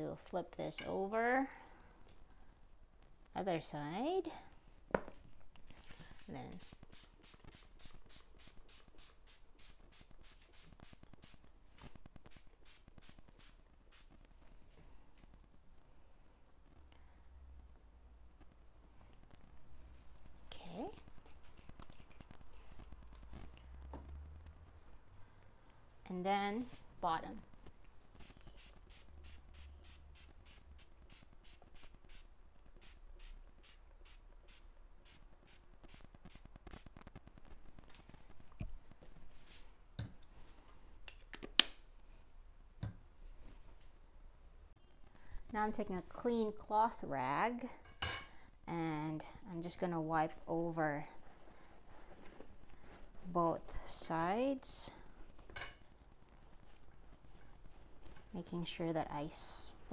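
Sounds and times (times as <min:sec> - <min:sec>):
spray bottle spritzes: 0:06.6 - 0:11.4.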